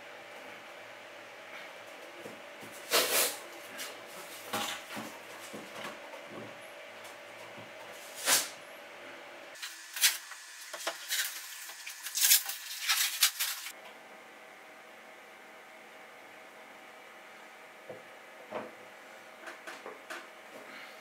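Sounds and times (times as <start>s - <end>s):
masking tape ripping: 9.6s - 13.7s.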